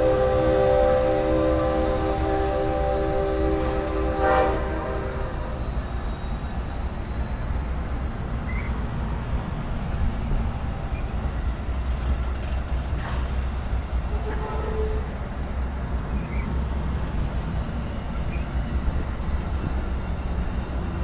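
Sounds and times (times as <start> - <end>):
train horn chord: 0.0 - 5.6, 14.1 - 15.1
train wheels rumbling on rail: 0.0 - 21.0.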